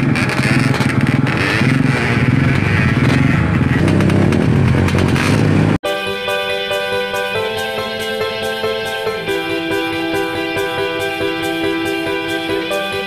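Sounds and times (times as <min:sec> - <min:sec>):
motorcycle engine revving: 0:00.0 - 0:05.8
background music: 0:05.2 - 0:13.0.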